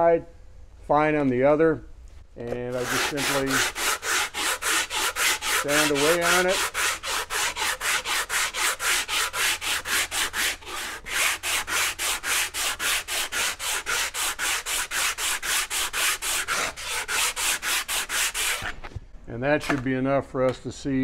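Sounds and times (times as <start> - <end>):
sandpaper sanding metal: 2.5 - 18.7.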